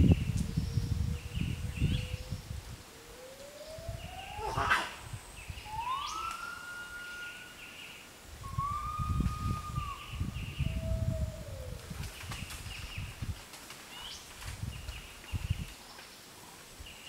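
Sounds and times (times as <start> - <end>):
gibbon hooting: 4.2 - 5.0.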